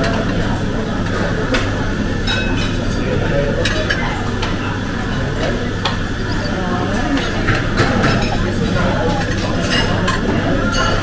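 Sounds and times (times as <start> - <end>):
background chatter: 0.0 - 11.0
china and utensils clinking: 7.1 - 11.0.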